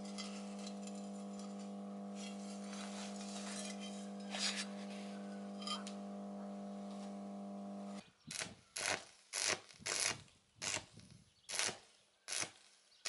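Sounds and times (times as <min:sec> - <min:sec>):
steel sheets scraping and clinking: 0:00.0 - 0:06.2
electrical hum: 0:00.0 - 0:08.0.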